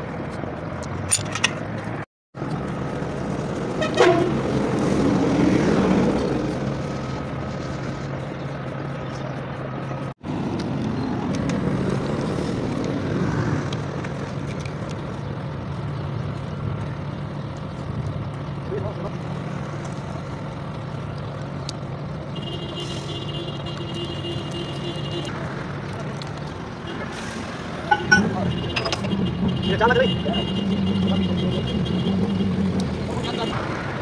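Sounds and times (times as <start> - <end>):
road traffic rumble: 0.0 - 34.0
vehicle horn toot: 3.8 - 4.4.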